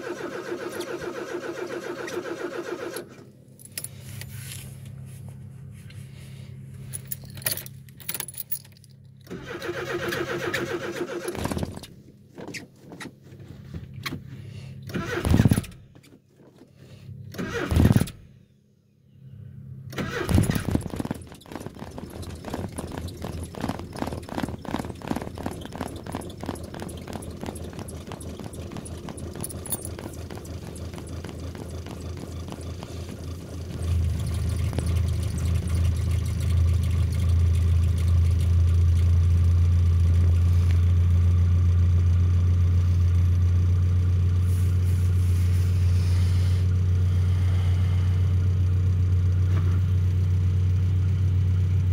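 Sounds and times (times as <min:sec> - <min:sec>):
old engine starting and running: 0:00.0 - 0:03.3, 0:09.2 - 0:12.0, 0:14.2 - 0:18.3, 0:19.9 - 0:51.9
keys jangling: 0:06.9 - 0:09.2, 0:29.3 - 0:30.1
loud thumps: 0:20.2 - 0:34.0.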